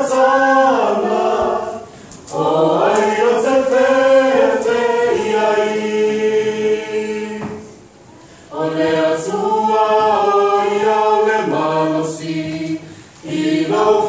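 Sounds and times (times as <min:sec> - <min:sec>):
choir singing unaccompanied: 0:00.0 - 0:14.0.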